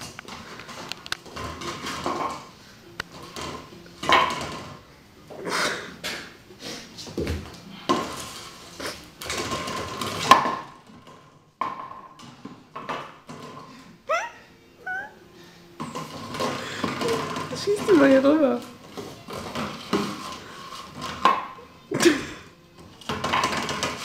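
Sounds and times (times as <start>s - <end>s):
plastic bottle crinkling on wooden floor: 7.2s - 13.7s.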